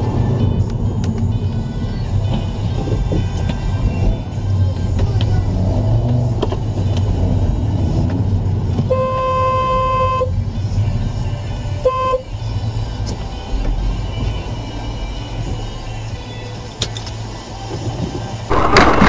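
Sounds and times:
engine and road rumble: 0:00.0 - 0:19.0
car horn: 0:08.8 - 0:10.4, 0:11.8 - 0:12.3.

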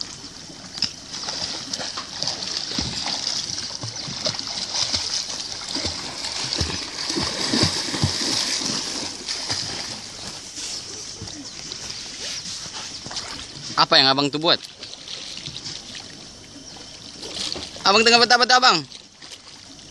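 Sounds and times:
arm strokes slapping water: 0:00.0 - 0:19.9
steady wash of water: 0:00.0 - 0:19.9.

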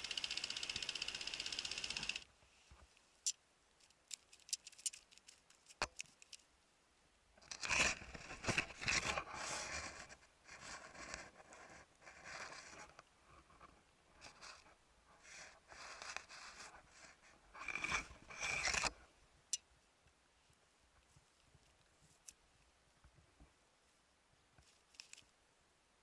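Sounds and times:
fast-pulsing high buzz: 0:00.0 - 0:02.2.

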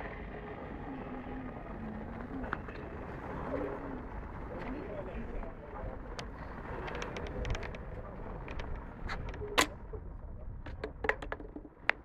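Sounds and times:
low rumble of trains and traffic: 0:00.0 - 0:12.0
sharp clicks and knocks: 0:10.6 - 0:12.0.

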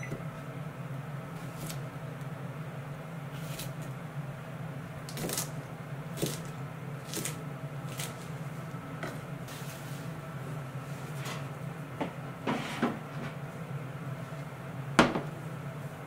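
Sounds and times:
steady low hum: 0:00.0 - 0:16.0
knife knocking on cutting board: 0:15.0 - 0:15.3.

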